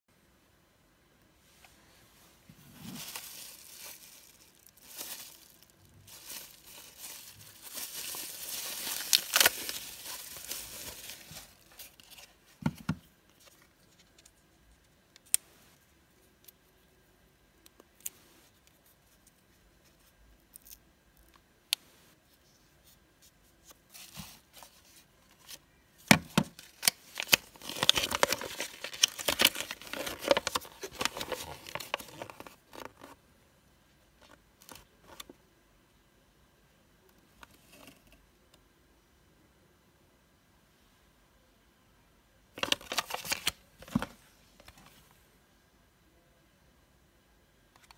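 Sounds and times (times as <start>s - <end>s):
bubble wrap crinkling and tearing: 2.6s - 12.4s, 26.4s - 33.2s, 42.6s - 44.0s
paper leaflet rustling: 2.6s - 14.3s, 26.6s - 33.2s.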